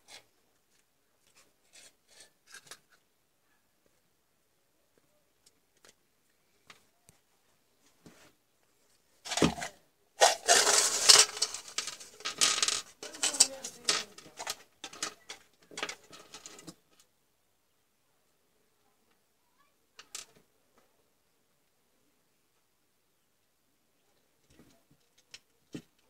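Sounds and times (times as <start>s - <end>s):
metal parts clattering on workbench: 9.3s - 16.7s
metal parts rattling in plastic cup: 9.3s - 16.7s.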